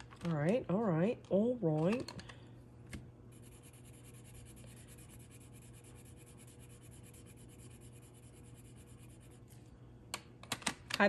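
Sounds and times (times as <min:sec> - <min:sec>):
pencil scratching on paper: 0:03.3 - 0:09.5.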